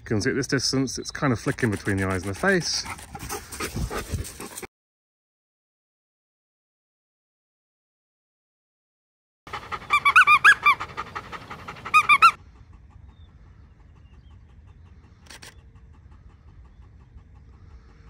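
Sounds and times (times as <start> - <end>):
dog panting with squeaky whines: 0.2 - 4.7, 9.5 - 18.0.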